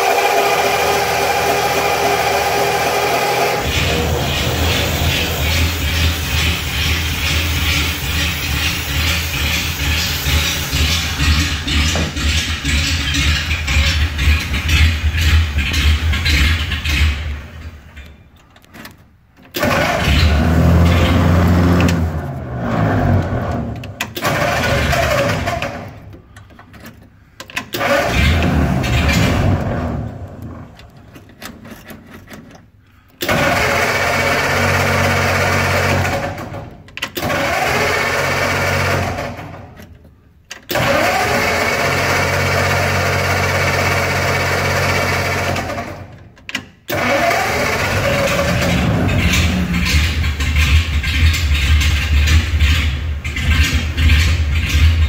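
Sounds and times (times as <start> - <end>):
car engine running: 0.5 - 17.6.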